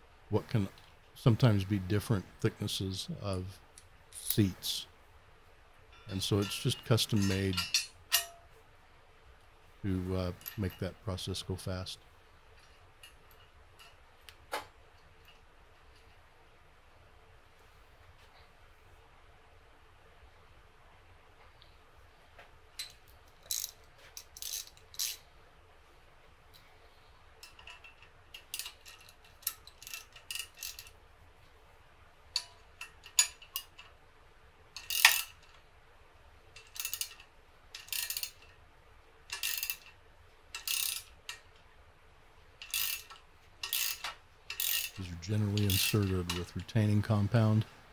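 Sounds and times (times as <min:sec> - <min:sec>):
metal tool clinks: 0:05.9 - 0:08.5
ratcheting wrench clicking: 0:22.8 - 0:25.2, 0:27.4 - 0:31.0, 0:32.4 - 0:34.0, 0:34.7 - 0:35.6, 0:36.5 - 0:38.6, 0:39.2 - 0:41.6, 0:42.6 - 0:46.5.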